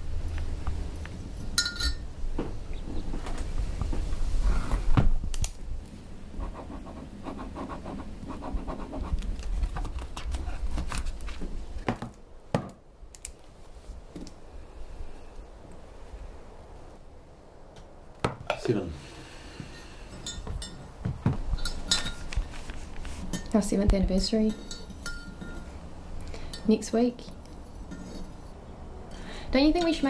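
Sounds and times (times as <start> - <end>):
tableware scraping and knocking: 19.6 - 20.9, 21.6 - 22.3, 24.4 - 25.8, 27.9 - 28.5.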